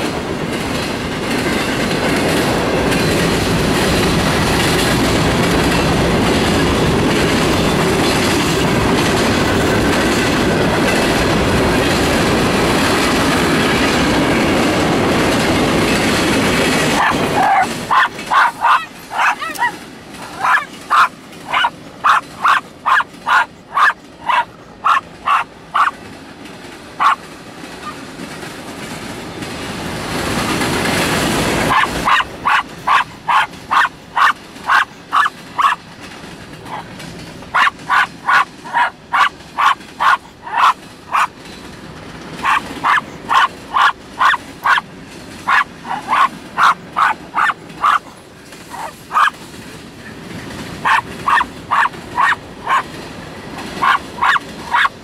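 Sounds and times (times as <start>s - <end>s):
freight train rolling by: 0.0s - 55.0s
small dog yapping: 17.0s - 26.0s, 27.0s - 27.2s, 31.7s - 35.8s, 36.7s - 36.9s, 37.5s - 41.3s, 42.4s - 44.8s, 45.5s - 48.1s, 48.7s - 49.4s, 50.8s - 52.9s, 53.8s - 55.0s.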